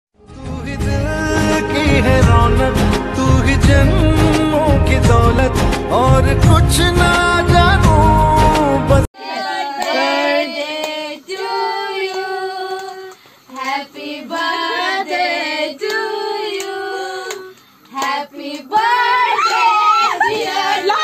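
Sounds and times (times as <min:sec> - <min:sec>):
girls singing unaccompanied: 0:09.2 - 0:21.0.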